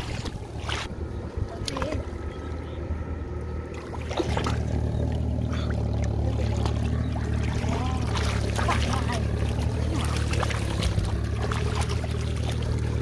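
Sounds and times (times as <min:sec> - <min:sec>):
hands splashing in water: 0:03.8 - 0:04.8, 0:05.7 - 0:13.0.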